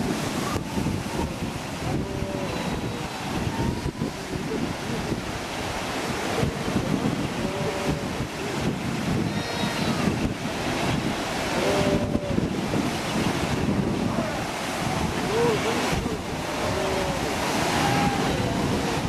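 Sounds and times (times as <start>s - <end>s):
surf breaking on rocks: 0.0s - 19.0s
wind buffeting microphone: 0.0s - 19.0s
seabird and sea lion calls: 1.8s - 3.8s, 7.4s - 8.2s, 11.4s - 12.5s, 14.1s - 19.0s.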